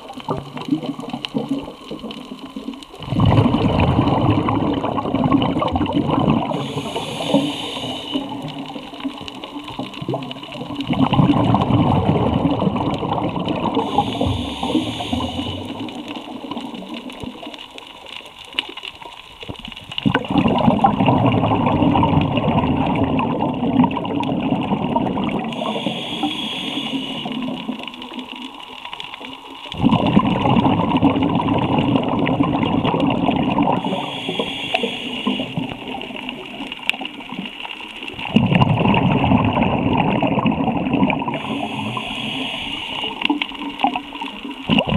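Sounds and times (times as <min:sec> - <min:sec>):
exhaled air bubbling underwater: 0:00.0 - 0:44.9
inhaled breath hiss: 0:06.4 - 0:09.6, 0:13.6 - 0:16.4, 0:25.4 - 0:28.2, 0:33.7 - 0:36.4, 0:41.3 - 0:43.8.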